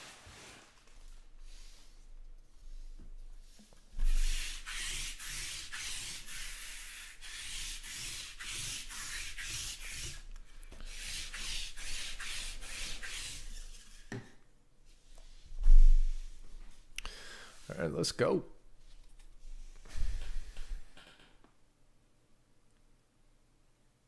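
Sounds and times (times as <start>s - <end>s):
lint roller rubbing on cloth: 2.6s - 14.1s.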